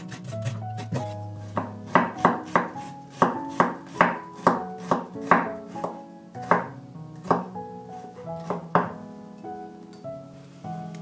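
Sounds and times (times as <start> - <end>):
knife chopping on wooden board: 0.1 - 7.5, 8.4 - 9.0.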